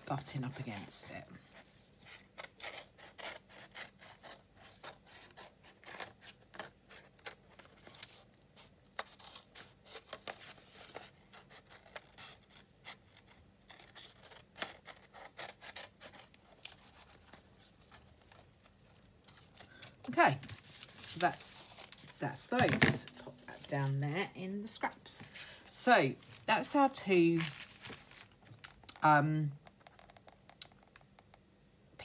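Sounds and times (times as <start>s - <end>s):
scissors snipping paper: 9.0s - 22.1s.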